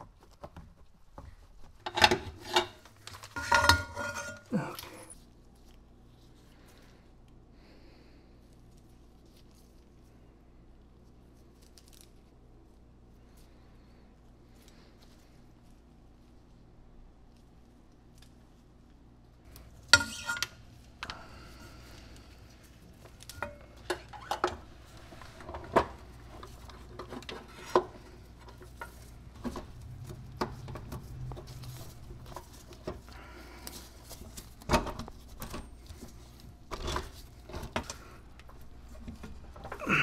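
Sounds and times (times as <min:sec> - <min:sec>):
metal tools clinking and knocking: 0:01.9 - 0:05.2, 0:19.9 - 0:20.5.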